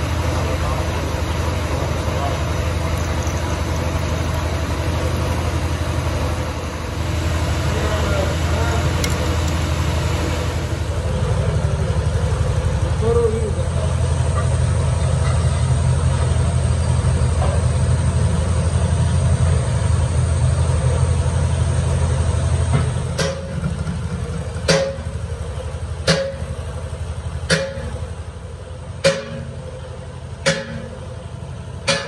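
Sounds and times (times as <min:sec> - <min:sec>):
lathe drive humming: 0:01.8 - 0:10.9.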